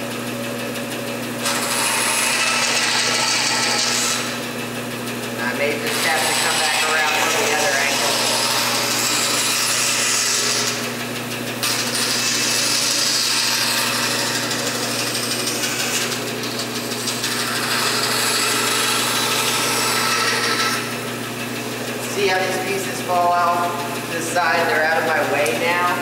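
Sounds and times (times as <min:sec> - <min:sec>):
band saw motor hum: 0:00.0 - 0:26.0
saw blade cutting wood: 0:01.4 - 0:04.7, 0:05.4 - 0:26.0.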